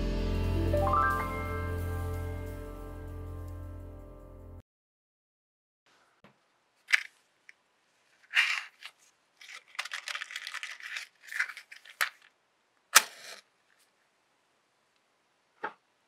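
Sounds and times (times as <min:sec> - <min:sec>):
matchbox clicks and rustling: 0:06.8 - 0:07.6, 0:08.2 - 0:12.3, 0:13.0 - 0:13.4.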